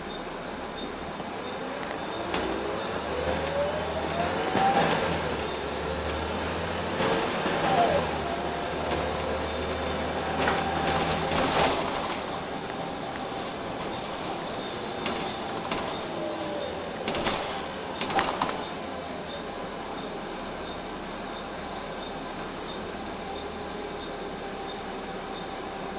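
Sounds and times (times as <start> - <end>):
bus engine drone: 0.0 - 25.9
drivetrain whine: 0.0 - 25.9
bus body rattles and knocks: 8.7 - 18.9.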